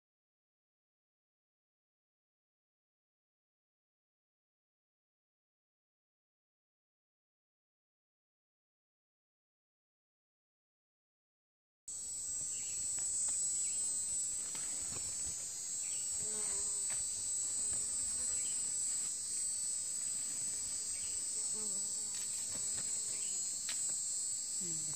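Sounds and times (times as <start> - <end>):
insects chirring: 11.9 - 24.9.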